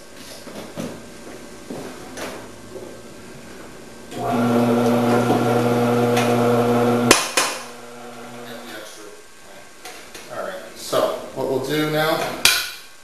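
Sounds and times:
vegetable cutter motor humming: 4.2s - 8.7s.

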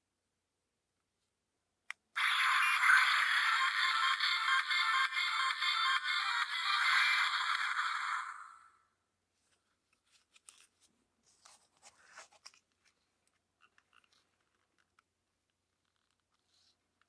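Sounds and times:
music: 2.2s - 8.5s.

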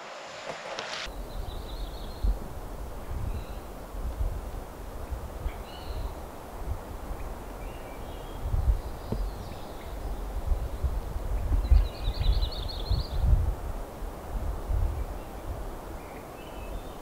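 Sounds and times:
songbird chirps: 1.0s - 2.4s, 7.1s - 13.3s, 15.0s - 17.0s
wind rumble on microphone: 1.0s - 17.0s.

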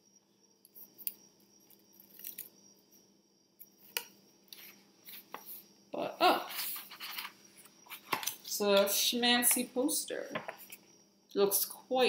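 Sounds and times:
paper rustling: 6.4s - 8.4s.

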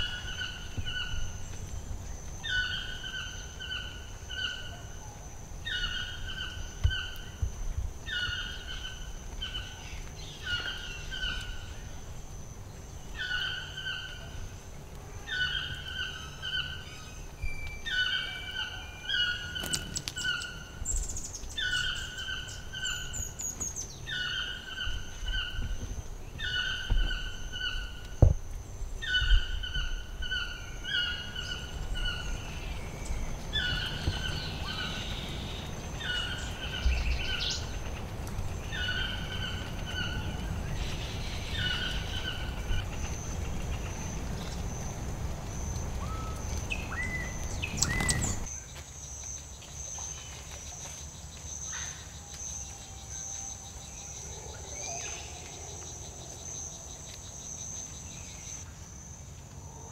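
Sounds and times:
bird calling: 0.0s - 7.4s, 8.0s - 11.9s, 13.1s - 14.6s, 15.2s - 28.4s, 29.0s - 48.5s.

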